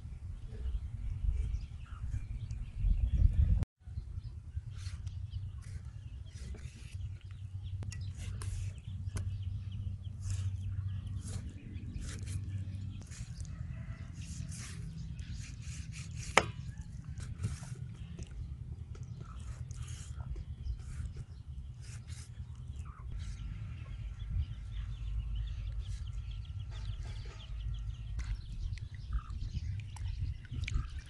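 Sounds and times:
low rumble: 0.0 - 31.0
knife slicing raw chicken: 10.2 - 17.9.

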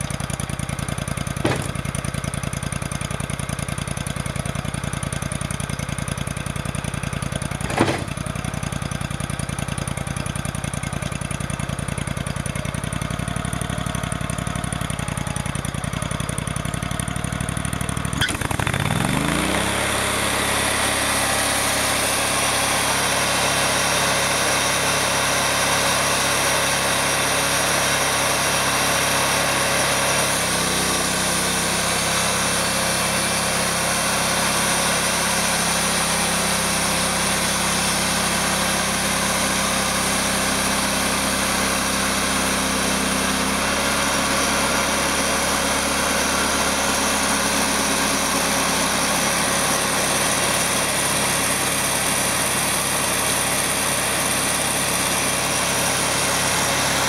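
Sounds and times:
sawmill engine running: 0.0 - 57.0
metal clank: 1.4 - 2.0, 7.6 - 8.3.

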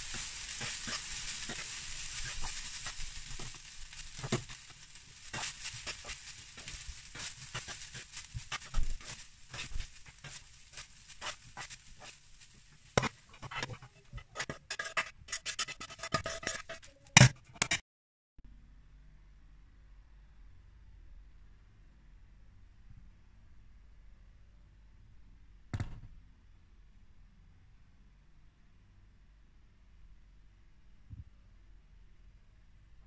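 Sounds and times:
light sizzle: 0.0 - 17.7
spatula scraping a pan: 0.0 - 17.8.

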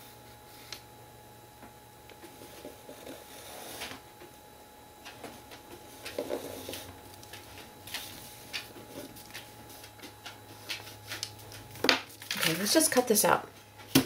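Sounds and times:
pencil scratching on paper: 2.4 - 4.0.

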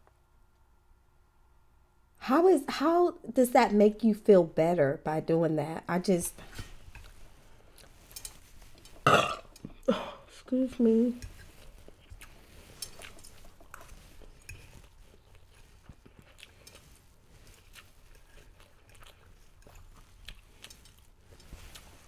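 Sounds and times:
faint chewing: 6.4 - 22.0.

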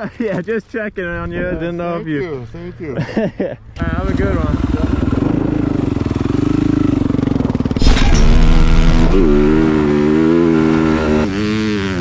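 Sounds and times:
dirt bike engine revving: 3.8 - 12.0.

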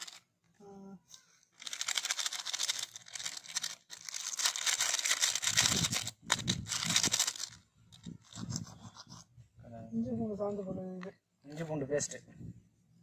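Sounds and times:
plastic sachets crinkling and tearing: 1.5 - 8.4.

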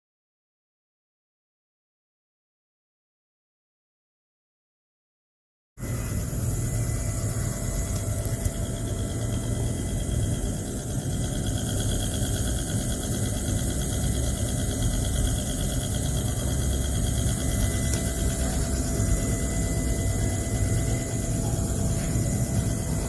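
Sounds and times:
magnetic stirrer motor humming: 5.8 - 23.0.

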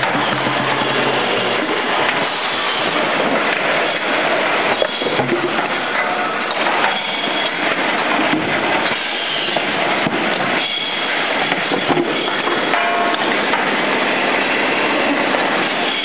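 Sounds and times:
machine clatter: 0.0 - 16.0.

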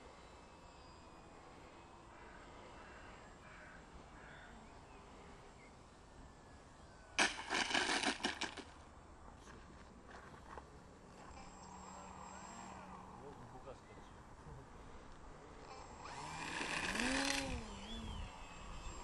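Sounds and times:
model plane skidding on asphalt: 16.0 - 18.1.

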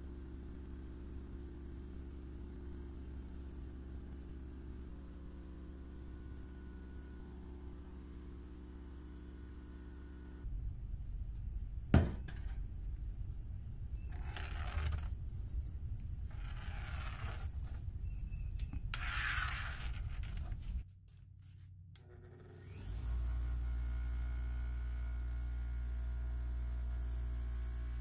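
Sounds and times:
steady hum: 0.0 - 28.0
metal parts scraping: 19.0 - 20.8.

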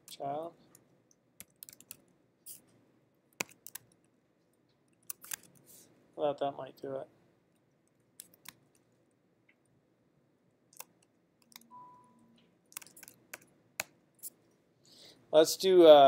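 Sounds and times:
keyboard keys clicking: 1.4 - 2.0, 3.4 - 4.0, 10.7 - 13.9.

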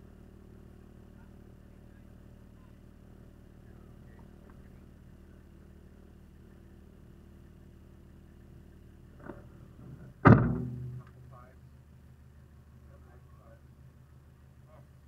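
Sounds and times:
diesel engine idling quietly: 0.0 - 15.0
loud thunk: 10.2 - 11.1.

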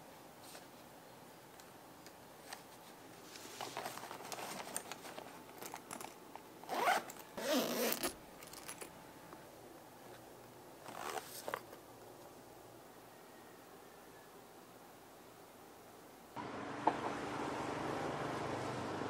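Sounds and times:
suitcase zipper pulled: 6.6 - 8.7, 10.8 - 11.6.

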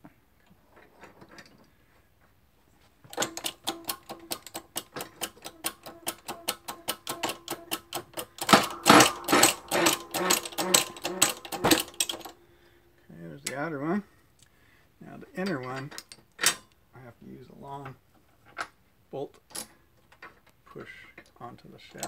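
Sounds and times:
shop press clicking: 3.1 - 12.4.

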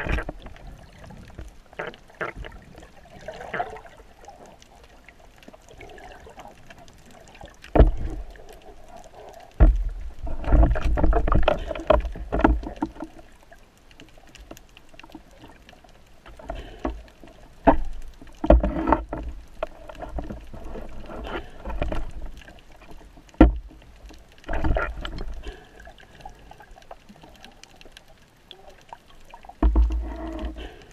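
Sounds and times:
water sloshing and bubbling: 0.0 - 30.9.

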